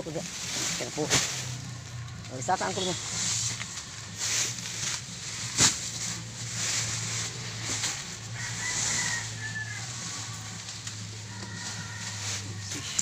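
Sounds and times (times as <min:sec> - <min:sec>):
sack fabric rustling and scraping: 0:00.0 - 0:13.0
steady low hum: 0:00.0 - 0:13.0.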